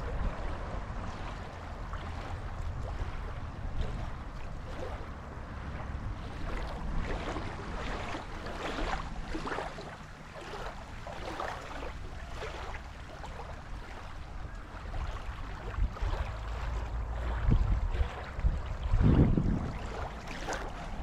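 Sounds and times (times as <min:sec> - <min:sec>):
small waves lapping on gravel shore: 0:00.0 - 0:21.0
wind rumble on microphone: 0:00.0 - 0:21.0.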